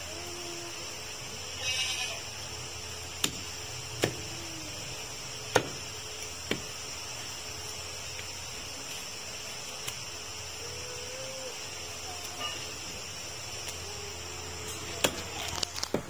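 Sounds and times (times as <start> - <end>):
steady high hiss: 0.0 - 16.0
cleaver chopping meat on wood: 3.2 - 3.4, 4.0 - 4.2, 5.5 - 5.8, 6.5 - 6.7.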